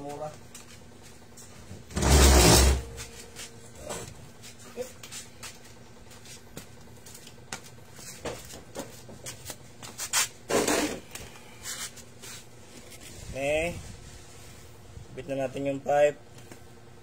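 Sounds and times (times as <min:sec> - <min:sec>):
rustling scrape: 0:01.9 - 0:03.6, 0:09.9 - 0:14.8.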